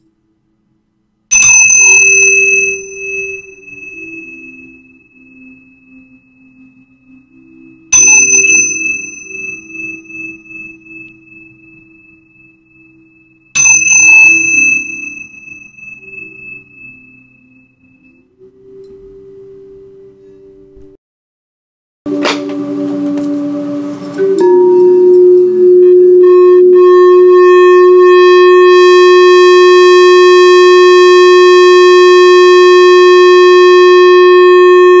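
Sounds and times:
low steady tone: 0:00.0 - 0:20.4, 0:22.1 - 0:35.0
cymbals ringing: 0:01.3 - 0:04.6, 0:08.0 - 0:11.1, 0:13.6 - 0:17.0
crystal singing bowl ringing: 0:01.3 - 0:18.4, 0:24.2 - 0:28.1.

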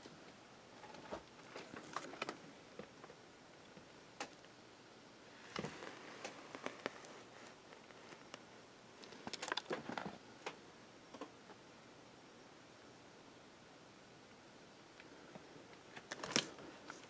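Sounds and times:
low hiss: 0:00.0 - 0:17.0
faint crackles and clicks: 0:00.3 - 0:04.6, 0:05.4 - 0:11.6, 0:14.9 - 0:17.0.

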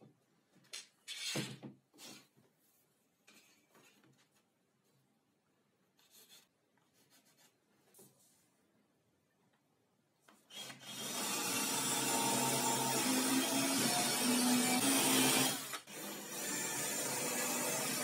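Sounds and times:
cordless drill boring into board: 0:10.5 - 0:18.0.

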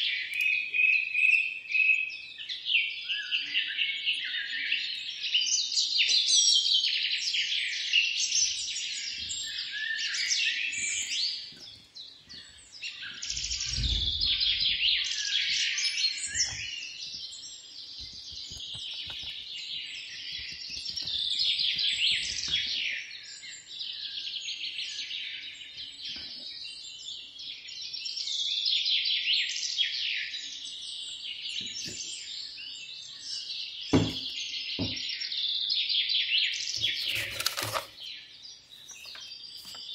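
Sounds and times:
birds chirping and singing: 0:00.0 - 0:39.9
knock: 0:33.9 - 0:35.0
batter mixed in glass bowl: 0:36.8 - 0:38.0.

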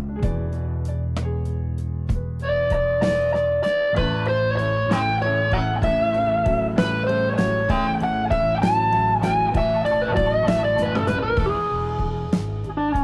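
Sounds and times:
bass line: 0:00.0 - 0:13.0
guitar melody with bending notes: 0:00.0 - 0:13.0
regular beat: 0:00.0 - 0:13.0.

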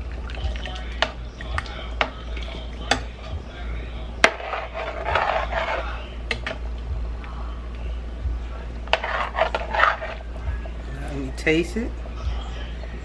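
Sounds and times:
gravy sloshing: 0:00.0 - 0:06.2, 0:08.9 - 0:10.9
spoon scraping pot: 0:04.2 - 0:06.6, 0:08.9 - 0:10.3.

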